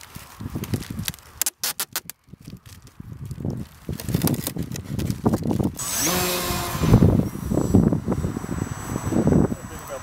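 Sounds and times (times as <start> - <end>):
wind on microphone: 0.0 - 1.2, 1.9 - 10.0
packing tape ripping off roll: 0.0 - 7.3.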